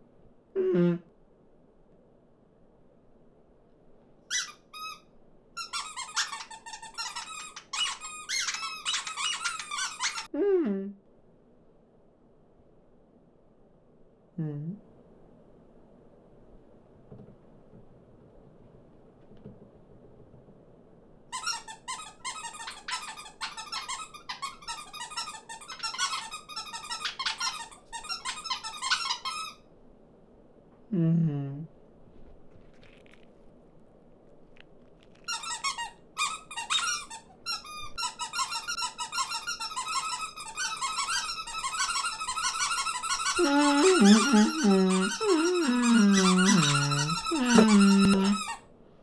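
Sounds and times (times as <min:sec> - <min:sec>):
cartoon birds squeaky chatter: 0:43.3 - 0:48.4.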